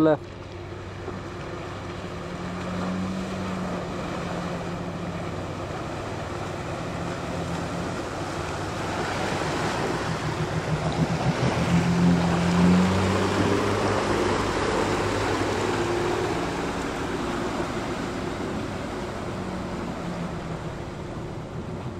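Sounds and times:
truck engine running: 0.0s - 21.9s
water splashing around tyres: 0.0s - 21.9s.

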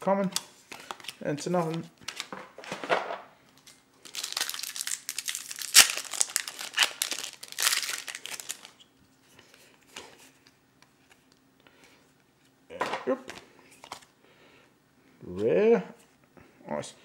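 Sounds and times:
cards being handled: 0.3s - 2.9s, 3.5s - 8.8s, 9.4s - 14.1s
foil wrapper crinkling: 3.6s - 8.8s
foil tearing: 4.1s - 8.7s.

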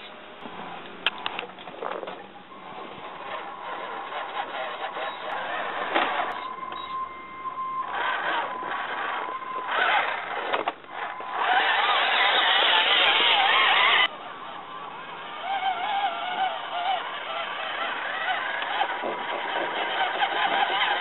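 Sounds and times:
loud wavering sound: 2.6s - 21.0s
toy car electric motor whining: 2.6s - 21.0s.

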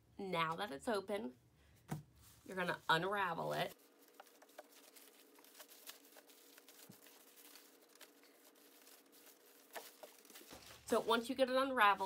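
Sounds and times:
faint steady hum: 0.0s - 12.0s
plastic tablecloth crinkling: 3.4s - 12.0s.

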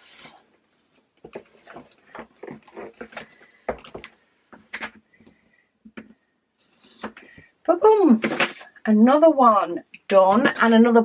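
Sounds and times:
plastic bags rustling and clicking: 0.8s - 5.3s.

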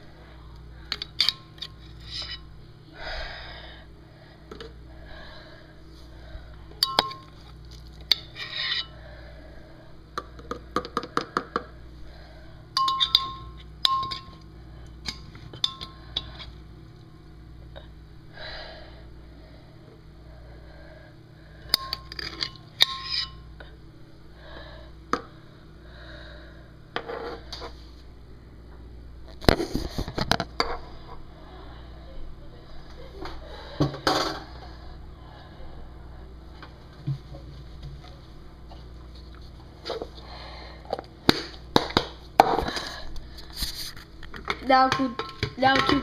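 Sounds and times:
kitchenware scraping: 1.0s - 2.5s, 21.8s - 23.4s, 43.5s - 46.0s
kitchenware knocks and clinks: 44.9s - 46.0s.

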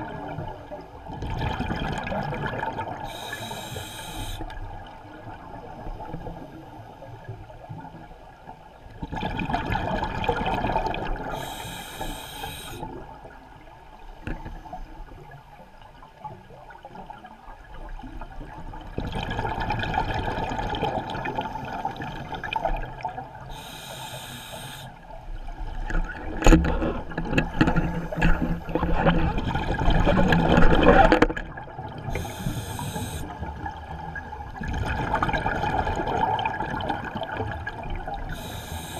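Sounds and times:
regulator inhalation hiss: 3.1s - 4.4s, 11.3s - 12.8s, 23.5s - 25.0s, 32.1s - 33.3s, 38.3s - 38.9s.

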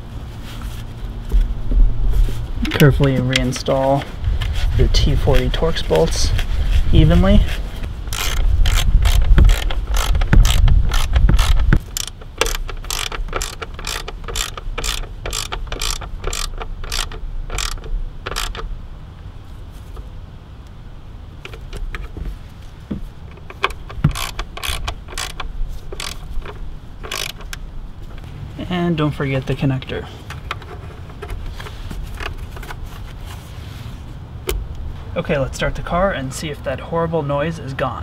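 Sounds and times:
low rumble: 0.0s - 12.0s
ratchet wrench clicking: 8.1s - 18.7s, 23.4s - 27.6s.

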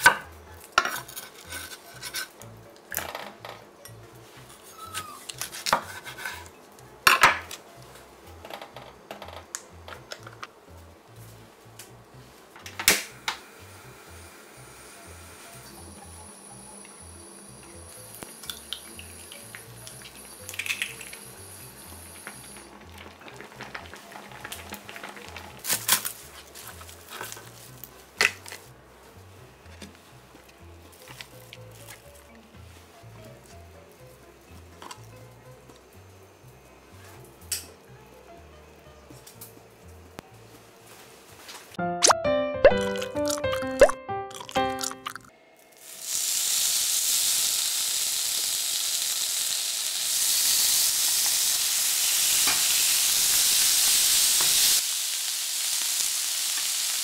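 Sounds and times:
stew boiling and popping: 15.6s - 28.7s, 42.0s - 57.0s.

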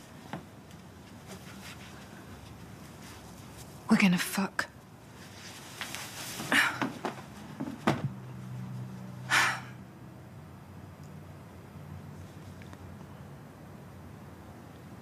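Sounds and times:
clothing rustling: 5.1s - 8.1s.

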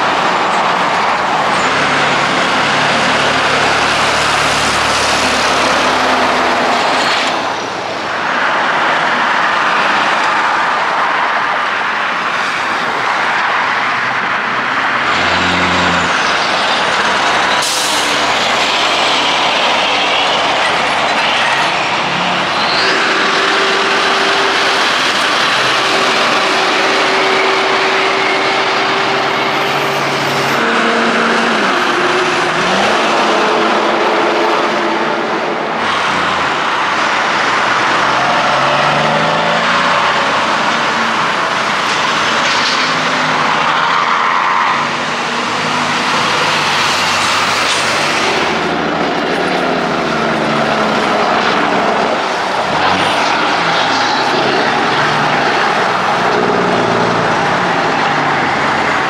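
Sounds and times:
trucks passing on highway: 0.0s - 59.0s.

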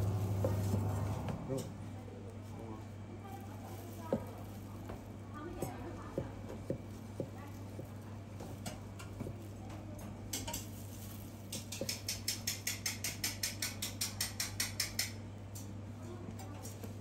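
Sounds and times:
cleaver knocking on cutting board: 5.6s - 7.9s.

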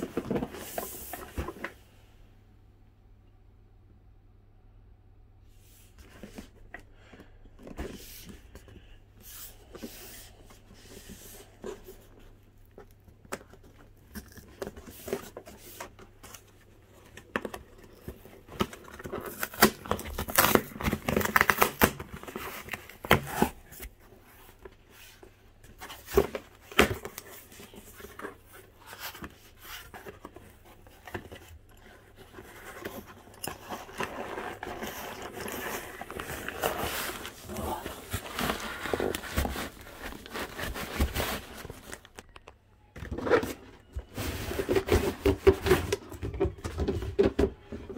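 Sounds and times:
cardboard tearing: 18.6s - 23.6s
packaging rustling: 25.7s - 42.5s
cardboard scraping: 25.8s - 42.0s.

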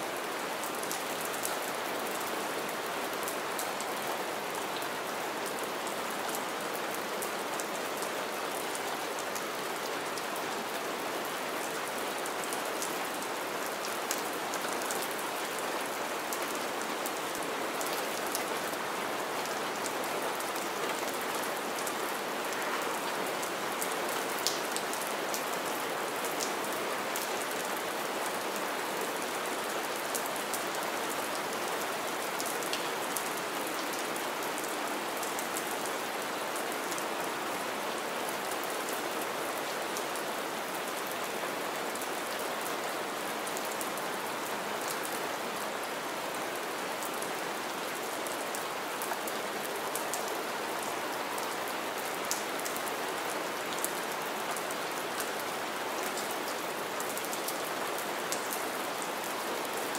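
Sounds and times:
steady rain hissing: 0.0s - 59.9s
raindrops ticking and splashing: 5.6s - 31.4s.

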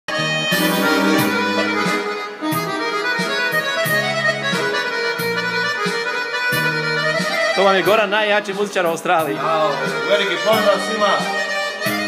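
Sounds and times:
electronic keyboard folk melody: 0.1s - 12.0s
percussion hits: 0.5s - 7.4s.

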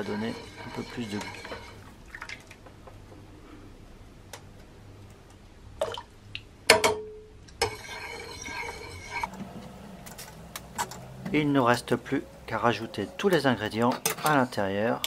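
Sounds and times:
liquid swishing: 0.0s - 2.5s, 7.6s - 9.4s.

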